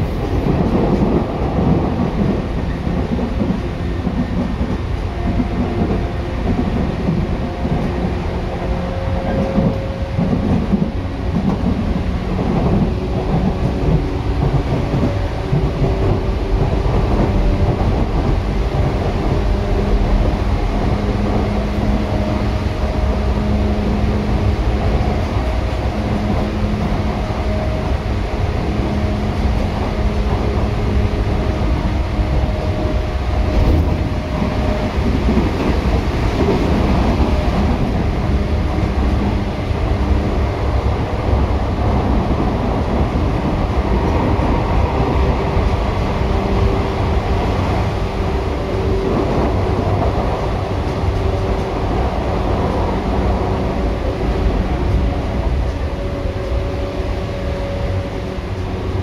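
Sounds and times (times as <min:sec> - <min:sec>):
train wheels rumbling on rails: 0:00.0 - 0:59.0.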